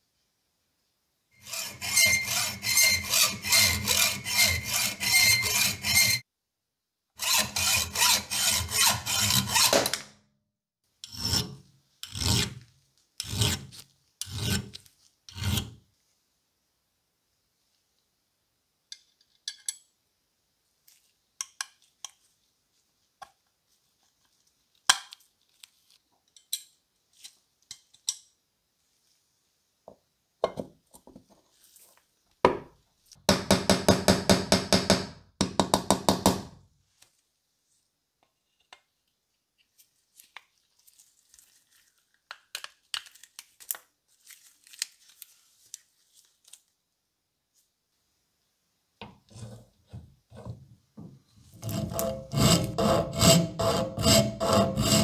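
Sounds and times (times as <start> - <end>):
hand tool strokes on metal pin: 1.4 - 6.2.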